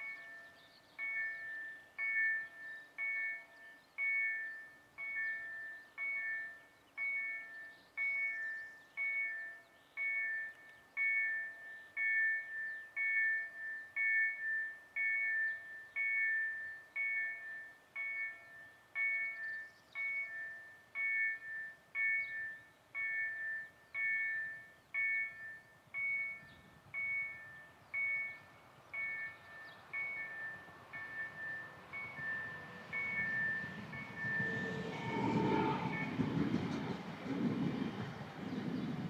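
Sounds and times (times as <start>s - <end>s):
level crossing warning bell ringing: 0.0s - 38.8s.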